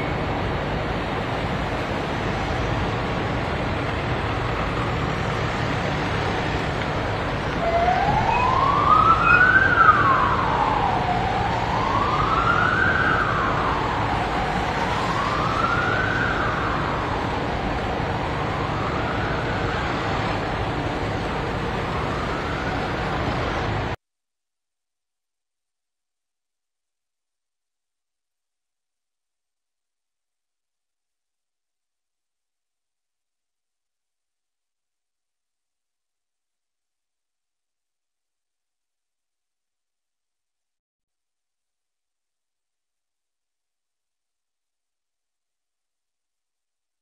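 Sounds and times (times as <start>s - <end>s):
police siren wailing: 7.1s - 24.0s.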